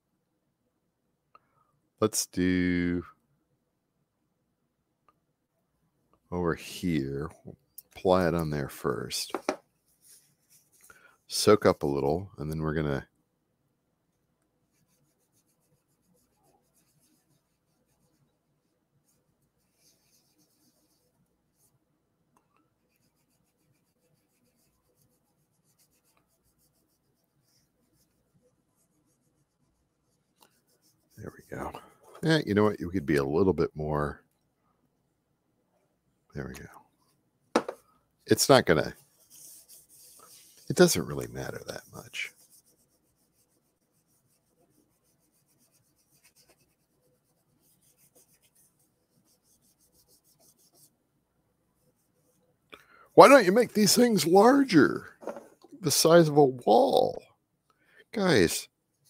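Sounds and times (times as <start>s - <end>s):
fingertips rubbing paper: 22.8s - 32.4s, 38.5s - 51.0s.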